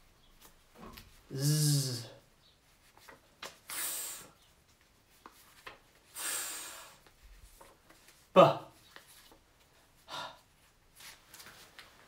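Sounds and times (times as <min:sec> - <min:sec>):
man sounding out consonants: 0:01.3 - 0:02.2, 0:08.4 - 0:08.7.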